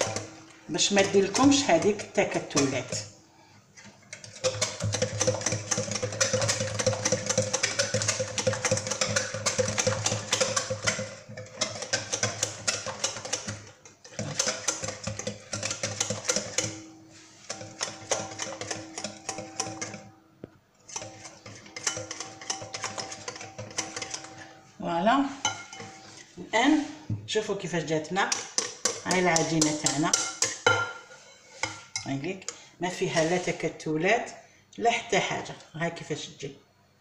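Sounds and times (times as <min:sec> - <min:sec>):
whisk clicking in glass bowl: 0:00.0 - 0:03.1, 0:04.1 - 0:20.2, 0:20.9 - 0:24.5, 0:28.2 - 0:30.9.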